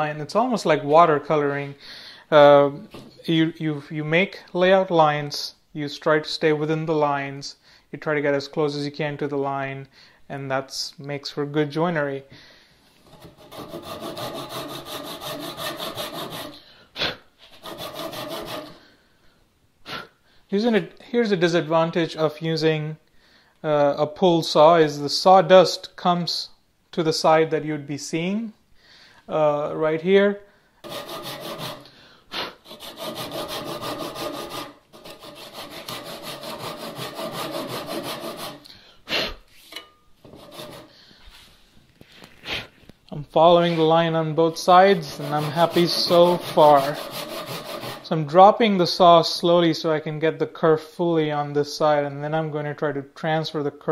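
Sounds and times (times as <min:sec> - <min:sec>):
short loud breath: 0:01.8 - 0:02.3, 0:38.6 - 0:39.5
hand saw rasping through wood: 0:13.1 - 0:16.6, 0:17.4 - 0:18.8, 0:30.8 - 0:38.7, 0:40.3 - 0:40.9, 0:44.6 - 0:48.1.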